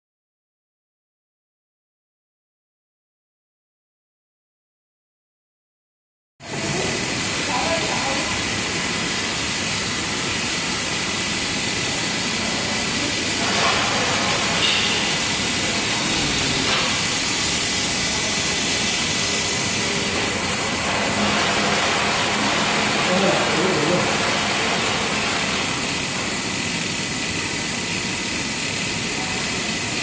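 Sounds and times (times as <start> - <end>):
machines hissing and humming: 6.4 - 30.0.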